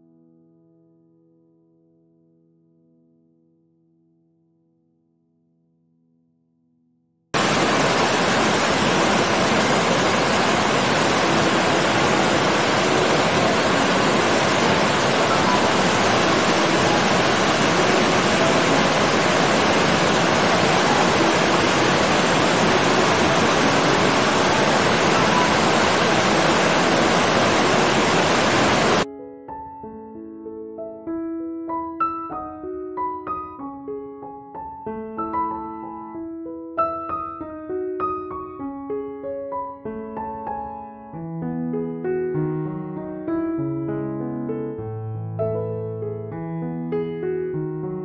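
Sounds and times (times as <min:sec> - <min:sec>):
water rushing: 0:07.4 - 0:29.1.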